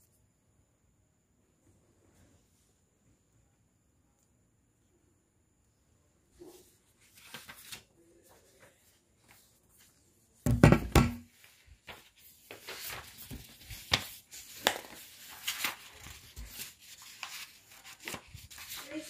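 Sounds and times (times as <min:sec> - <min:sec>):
rustling and scraping of handling: 0:06.3 - 0:10.4, 0:11.3 - 0:19.0
phone dropping with thump: 0:10.5 - 0:11.3.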